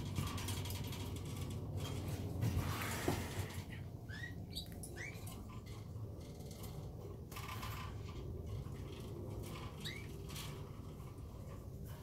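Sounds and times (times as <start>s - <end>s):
scratching and clicks in cage: 0.0s - 12.0s
steady low hum: 0.0s - 12.0s
canaries chirping: 2.6s - 6.0s, 7.3s - 12.0s.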